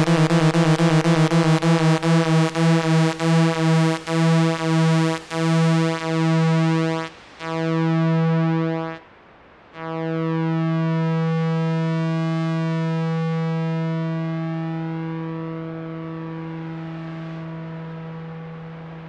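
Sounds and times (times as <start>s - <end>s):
synthesizer repeating a note: 0.0s - 9.0s.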